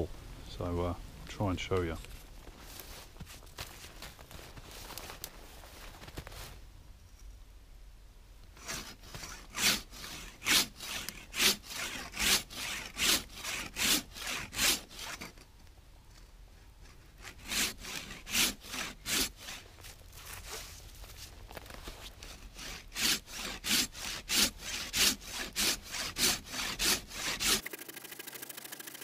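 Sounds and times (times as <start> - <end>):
saw cutting through a log: 8.6 - 15.4, 16.8 - 20.7, 22.1 - 29.0.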